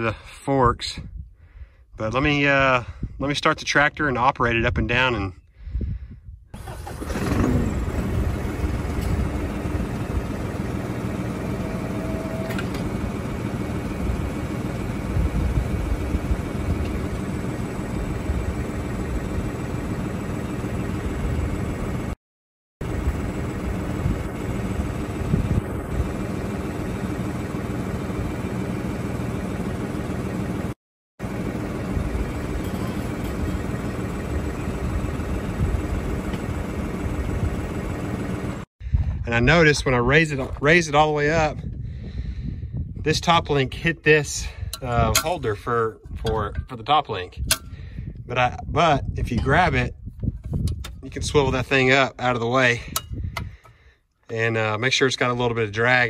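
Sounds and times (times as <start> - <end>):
hydraulics raising and lowering: 6.6 - 20.5
tractor engine starting and idling: 6.6 - 22.2, 22.8 - 38.7, 43.7 - 56.0.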